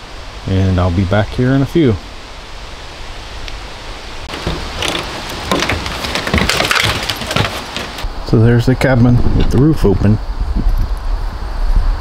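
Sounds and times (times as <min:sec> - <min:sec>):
steady background hiss: 0:00.0 - 0:12.0
plastic panel rattling: 0:04.3 - 0:08.1.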